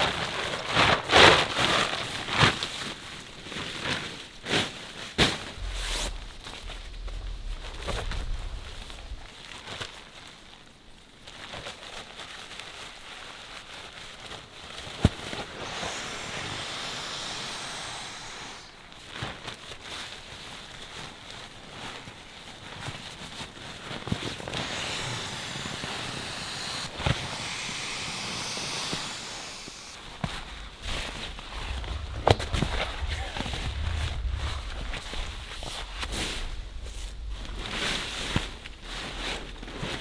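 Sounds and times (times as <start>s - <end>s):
air rushing into sleeping pad: 5.2s - 9.8s, 15.0s - 19.4s, 24.1s - 40.0s.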